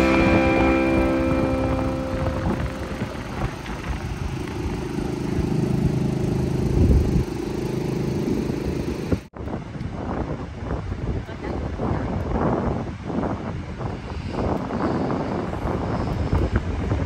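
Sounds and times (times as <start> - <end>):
small engine droning: 0.0 - 9.3.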